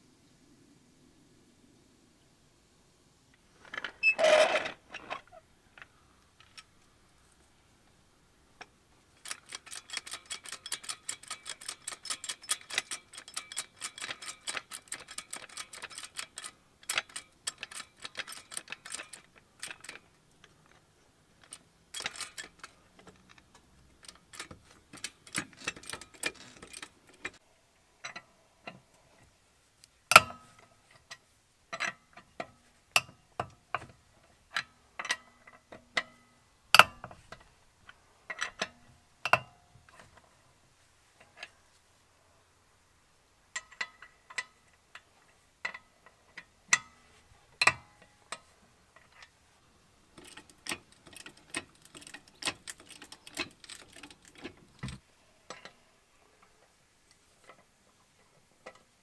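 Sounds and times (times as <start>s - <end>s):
metallic clicks and clanks: 8.6s - 27.4s, 28.0s - 28.8s, 30.1s - 40.2s, 43.5s - 47.0s, 47.6s - 49.4s, 50.0s - 55.8s.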